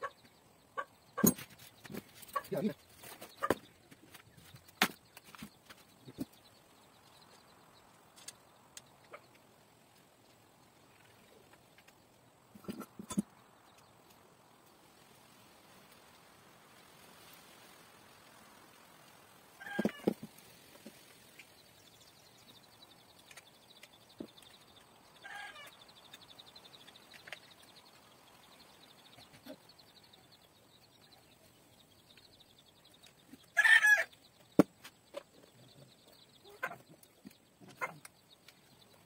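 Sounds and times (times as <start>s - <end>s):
chicken calling: 33.5s - 34.2s.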